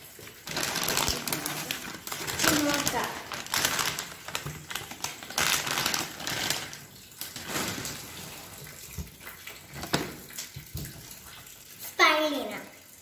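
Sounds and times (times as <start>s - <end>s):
plastic packaging crinkling: 0.3s - 9.0s.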